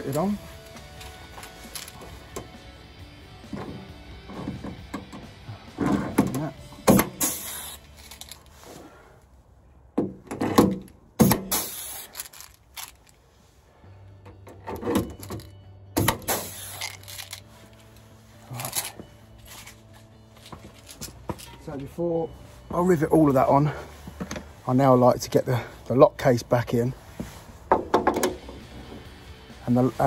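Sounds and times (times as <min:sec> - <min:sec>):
hiss of exhausting air: 0:07.1 - 0:07.9, 0:11.5 - 0:12.2, 0:16.3 - 0:16.9
rivet gun pops: 0:10.7 - 0:12.1, 0:16.0 - 0:17.3.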